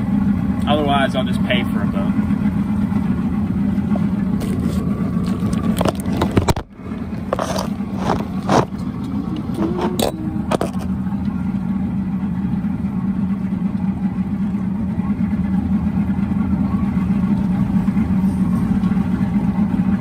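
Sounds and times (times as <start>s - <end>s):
outboard engine running: 0.0s - 20.0s
phone handling knocks and scrapes: 4.4s - 8.8s, 9.6s - 10.9s.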